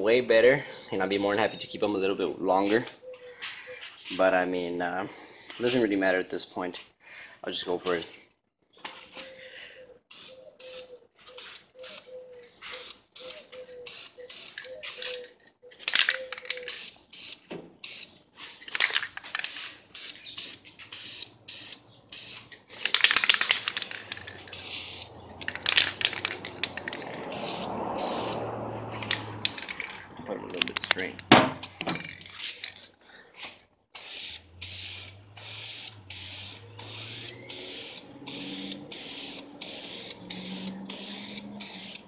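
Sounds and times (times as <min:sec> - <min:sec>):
spray can hissing: 0:10.1 - 0:15.2, 0:19.3 - 0:29.9, 0:34.0 - 0:42.0.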